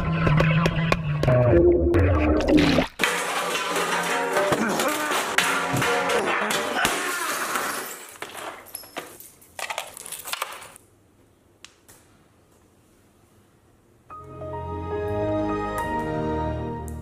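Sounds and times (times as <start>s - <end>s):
debris scraping on tile floor: 3.0s - 10.8s.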